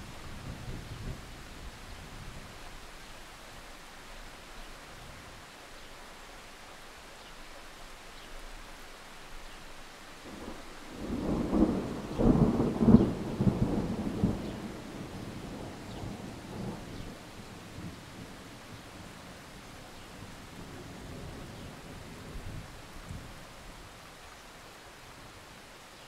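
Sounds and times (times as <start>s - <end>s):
steady rain: 0.0s - 26.0s
thunder crackling and rumbling: 10.3s - 19.1s.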